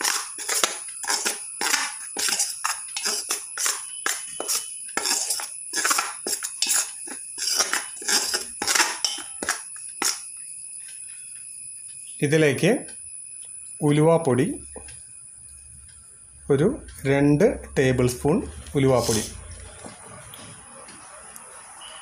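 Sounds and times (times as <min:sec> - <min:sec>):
scraping in steel bowl: 0:00.0 - 0:10.2.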